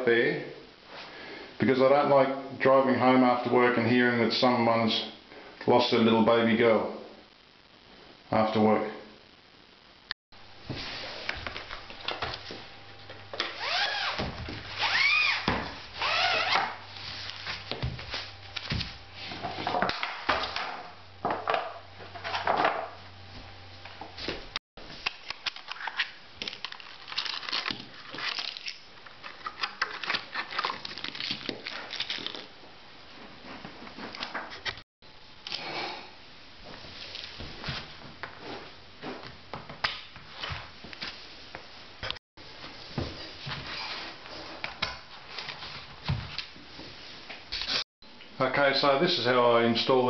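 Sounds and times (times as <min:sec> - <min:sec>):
plastic packaging crinkling: 0:25.0 - 0:32.6.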